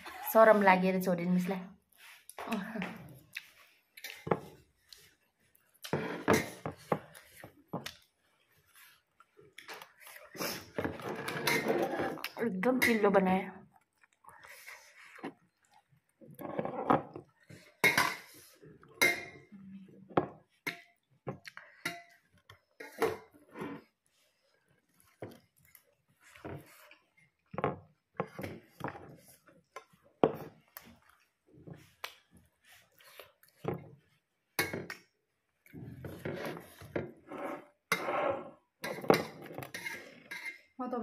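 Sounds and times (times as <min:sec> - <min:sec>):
person chewing and lip smacking: 0:02.5 - 0:04.2.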